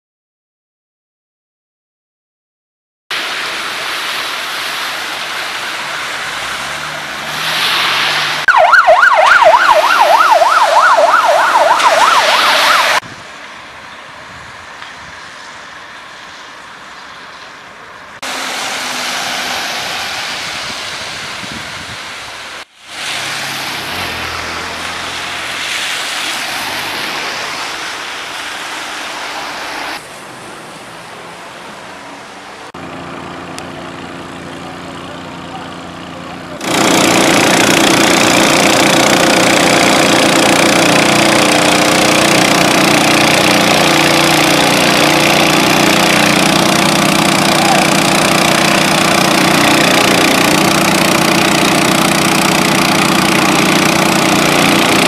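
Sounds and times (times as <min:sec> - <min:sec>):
passing traffic: 0:03.1 - 0:55.0
siren yelping: 0:08.4 - 0:13.0.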